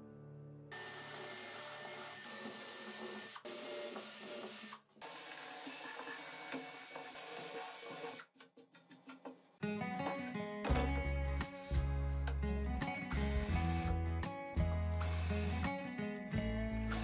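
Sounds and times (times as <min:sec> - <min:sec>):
cordless drill boring into wood: 0:00.7 - 0:08.2, 0:13.2 - 0:13.9, 0:15.0 - 0:15.7.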